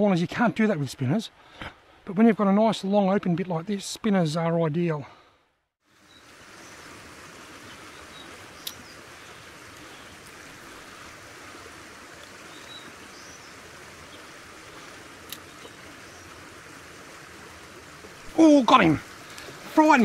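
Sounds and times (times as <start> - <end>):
creek rushing: 5.8 - 20.0.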